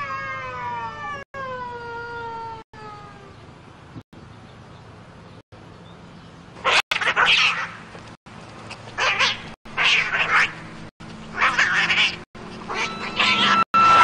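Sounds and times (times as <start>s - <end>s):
cats screeching yowls: 0.0s - 1.2s, 6.6s - 7.7s, 9.0s - 10.6s, 11.4s - 13.7s.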